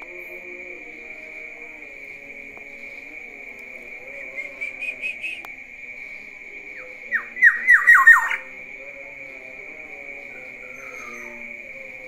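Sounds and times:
oriole calling: 6.8s - 8.6s, 10.3s - 11.7s.

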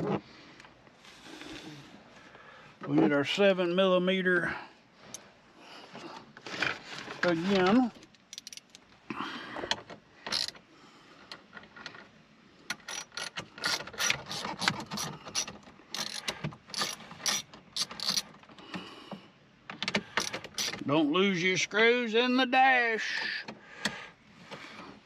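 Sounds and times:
ratchet pawl clicking: 12.8s - 18.3s, 20.2s - 20.8s.

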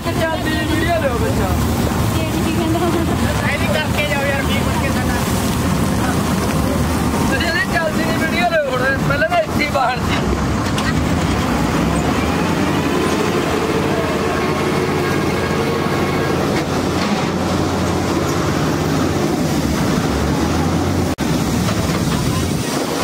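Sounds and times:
combine harvester engine idling: 10.2s - 22.6s.

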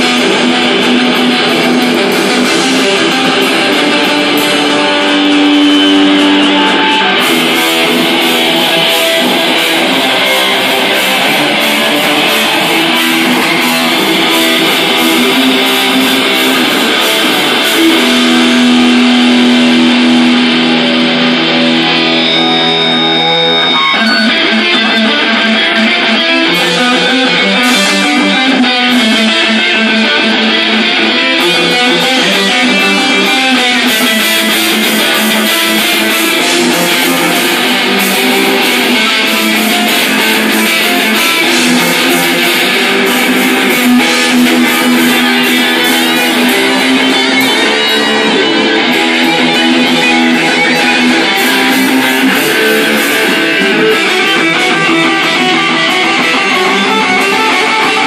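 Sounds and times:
cymbals: 0.0s - 24.8s
drum kit: 0.0s - 58.0s
electric guitar: 0.0s - 58.0s.

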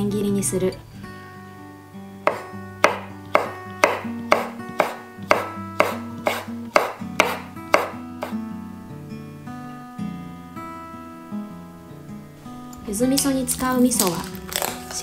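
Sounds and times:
soft acoustic guitar music: 0.0s - 15.0s
knife tapping on wooden board: 2.3s - 8.4s.

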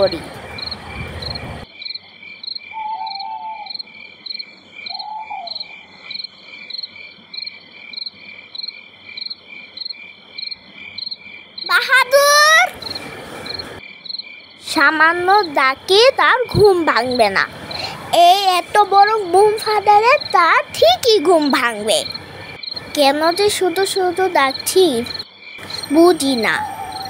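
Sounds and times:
crickets chirping: 0.0s - 27.0s
lower animal calls: 2.7s - 3.9s, 4.8s - 6.2s, 26.4s - 27.0s
woman calling out loudly: 11.7s - 12.7s, 25.9s - 27.0s.

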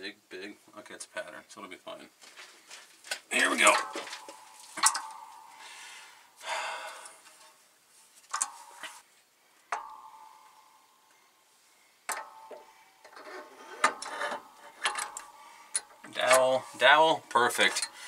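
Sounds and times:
metal scraping: 3.3s - 6.3s, 8.3s - 9.0s, 12.1s - 18.0s
metal clanks: 3.4s - 6.0s, 8.3s - 9.0s, 9.7s - 11.3s, 12.1s - 18.0s
sharp metal knocks ringing: 3.5s - 6.0s, 9.7s - 11.3s, 12.1s - 12.8s.

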